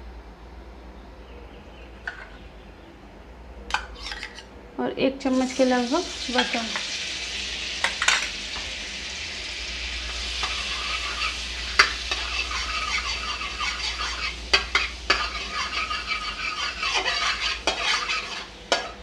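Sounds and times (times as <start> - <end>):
butter sizzling in oil: 5.3 - 19.0
spatula stirring: 10.0 - 19.0
spatula clinking against pan: 10.4 - 19.0.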